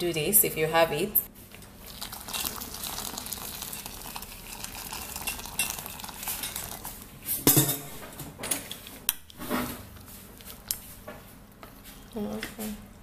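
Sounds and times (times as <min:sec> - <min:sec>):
hot water pouring into bowl: 0:01.8 - 0:07.0.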